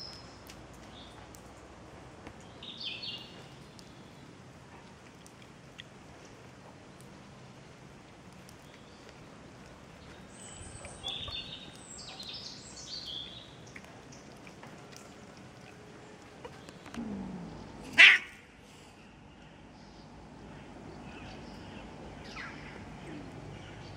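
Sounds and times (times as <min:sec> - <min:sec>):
birds chirping: 0:08.4 - 0:18.4
short loud animal call: 0:17.8 - 0:18.4.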